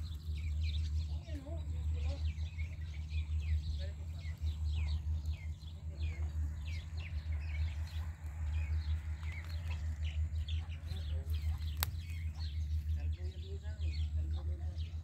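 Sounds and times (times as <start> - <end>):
birds chirping: 0.0 - 15.0
steady low hum: 0.0 - 15.0.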